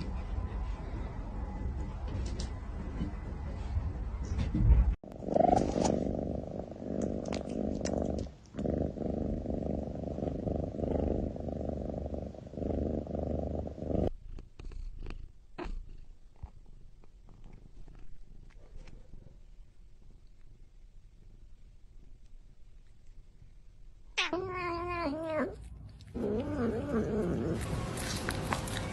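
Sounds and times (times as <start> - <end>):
cat purring: 0.0 - 27.6
faint soft clicks and rustles: 14.1 - 24.1.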